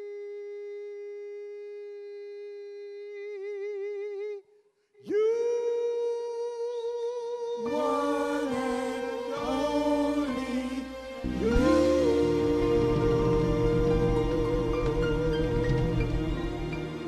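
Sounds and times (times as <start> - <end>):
harmony voices singing: 7.6 - 17.0
lead voice singing with vibrato: 7.6 - 17.0
band playing chord: 7.7 - 17.0.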